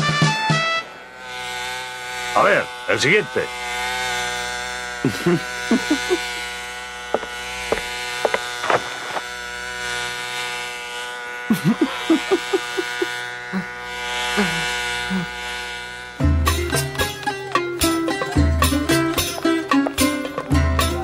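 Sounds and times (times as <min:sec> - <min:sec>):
electric hair clippers buzzing: 0:00.1 - 0:21.0
squeaky sliding sounds: 0:07.2 - 0:09.2.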